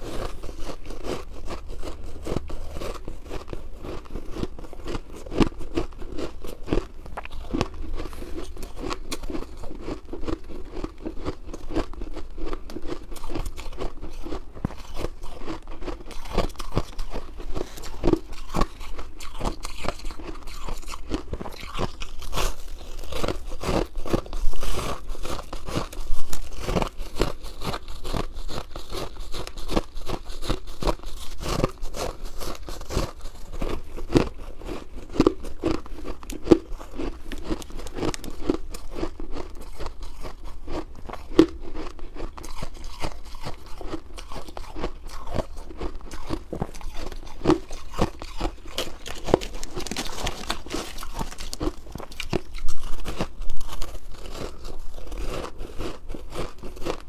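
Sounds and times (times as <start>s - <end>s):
shaved ice crunching: 13.2s - 41.4s, 42.2s - 57.0s.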